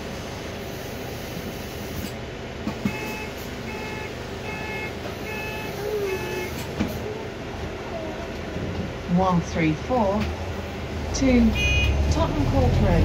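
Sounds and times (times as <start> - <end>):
bus running hum: 0.0 - 13.0
short high door warning beeps: 2.9 - 6.7.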